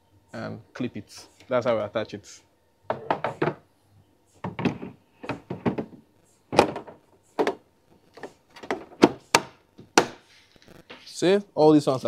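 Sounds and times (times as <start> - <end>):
plastic parts knocking and clunking: 2.9 - 3.7, 4.4 - 10.2.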